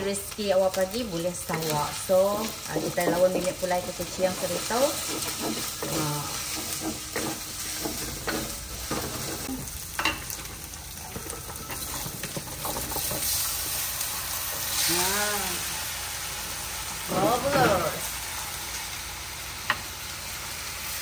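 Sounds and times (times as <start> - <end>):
meat sizzling in hot oil: 0.0 - 21.0
utensil scraping a pan: 4.4 - 9.5.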